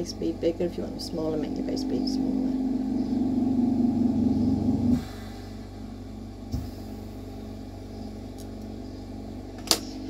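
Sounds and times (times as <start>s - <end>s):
torch setup mechanical hum: 0.0s - 10.0s
soft thump: 6.5s - 6.8s.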